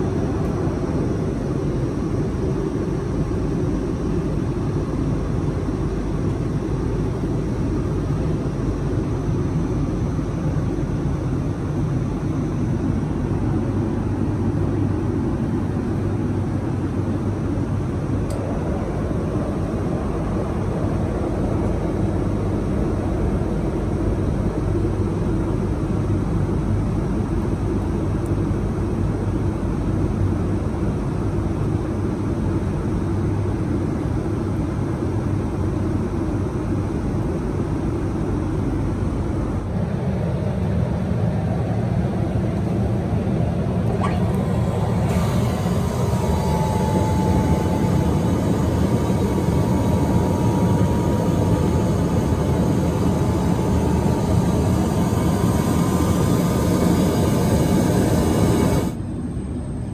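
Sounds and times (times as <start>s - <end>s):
airliner cabin roar: 0.0s - 59.9s
trash compactor whine and hum: 39.4s - 59.9s.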